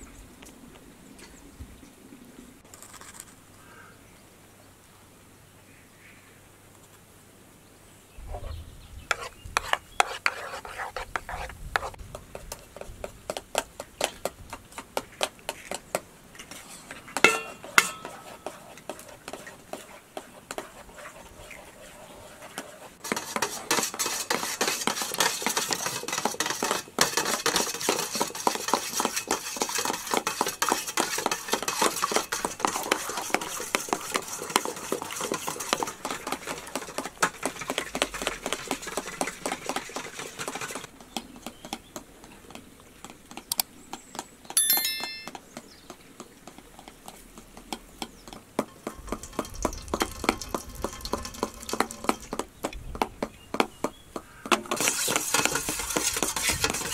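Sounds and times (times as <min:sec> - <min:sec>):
spoon beating eggs in metal bowl: 0:09.1 - 0:40.9, 0:48.2 - 0:52.4, 0:54.5 - 0:56.9
high-pitched chirp: 0:44.6 - 0:45.4.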